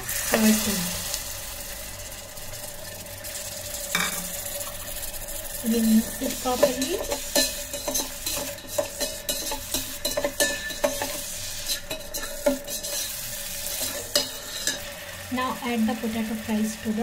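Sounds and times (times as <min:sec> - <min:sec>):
spices sizzling in oil: 0:00.0 - 0:17.0
metal spoon scraping pot: 0:05.8 - 0:14.9.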